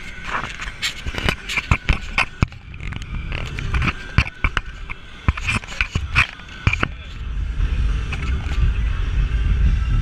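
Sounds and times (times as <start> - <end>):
camera mount clicks and knocks: 1.1 - 6.9.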